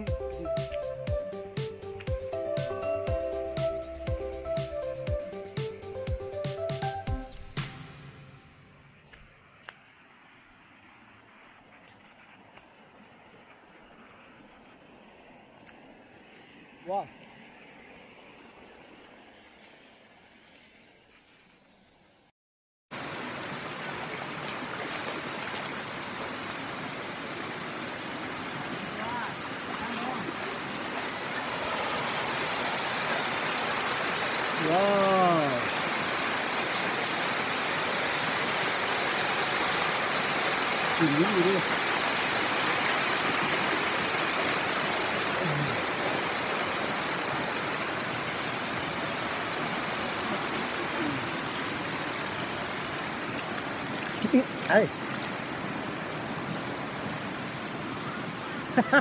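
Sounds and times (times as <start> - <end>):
waterfall rushing: 23.0 - 59.0.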